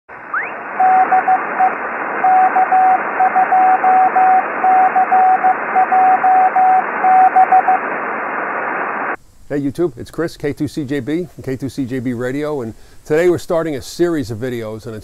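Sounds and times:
radio static hiss: 0.1 - 15.0
rising whistle: 0.3 - 7.9
morse code tone: 0.4 - 7.8.

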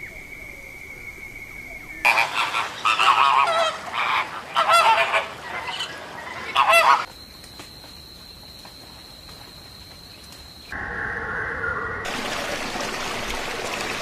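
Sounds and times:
flock of flamingos honking: 2.0 - 7.1.

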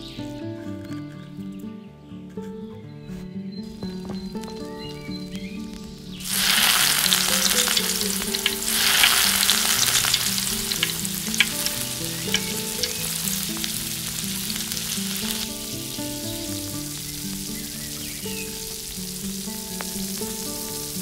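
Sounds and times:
oil crackling and popping: 5.5 - 21.0
fish deep-frying in hot oil: 6.2 - 21.0
oil hissing: 6.2 - 21.0.

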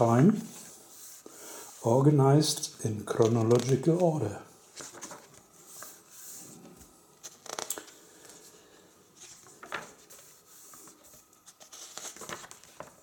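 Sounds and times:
book pages rustling: 3.1 - 13.0.

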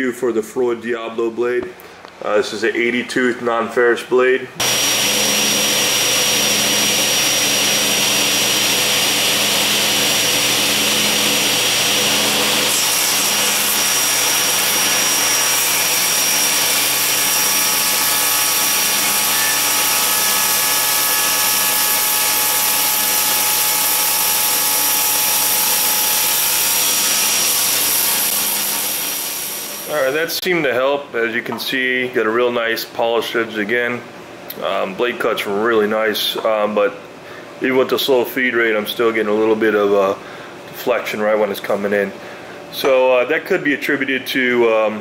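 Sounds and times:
table saw cutting aluminum: 4.6 - 30.0.

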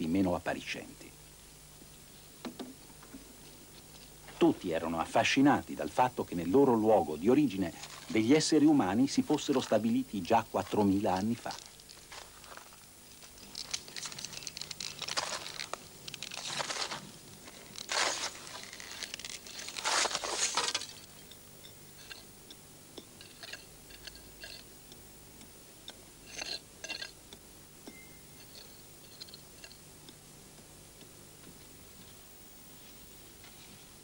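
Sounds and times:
scraping and crunching of gravel: 7.4 - 21.3, 22.0 - 22.3, 23.2 - 24.7, 26.2 - 27.2
small stones rattling: 10.8 - 21.1.

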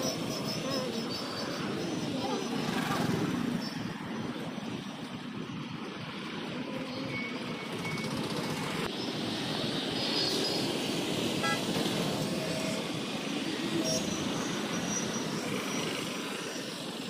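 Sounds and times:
motorbikes and rickshaws passing: 0.0 - 17.0
vehicle horn toot: 11.4 - 11.6.

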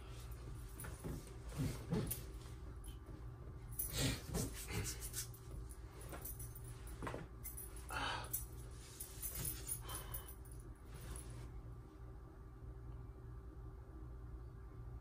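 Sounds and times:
steady low hum: 0.0 - 15.0
person rustling on a bed: 10.8 - 11.6.

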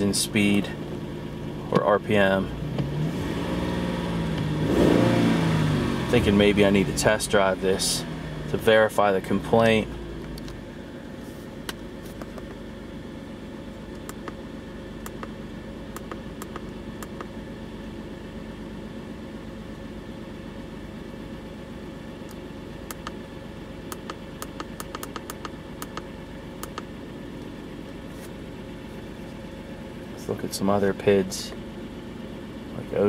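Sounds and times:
car engine idling: 0.0 - 33.0.

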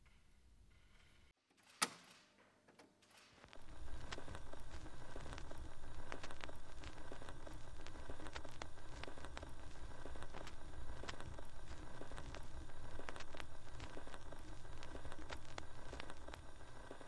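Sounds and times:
low hum: 3.5 - 17.0
static clicks and pops: 3.5 - 17.0
radio static hiss: 3.6 - 17.0.

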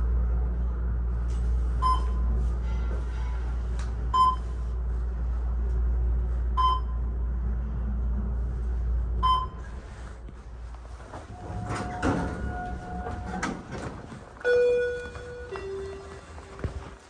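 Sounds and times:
elevator car humming: 0.0 - 17.0
elevator floor indicator beep: 1.8 - 2.2, 4.1 - 4.5, 6.6 - 7.0, 9.2 - 9.8, 14.4 - 16.4.

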